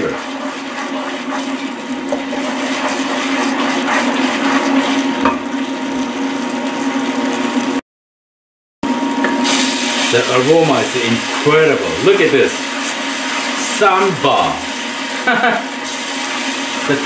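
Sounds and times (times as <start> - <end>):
wooden spoon scraping a pan: 0.0 - 5.4, 9.5 - 15.2, 15.8 - 17.0
curry paste sizzling in a pan: 0.0 - 7.8, 9.4 - 17.0.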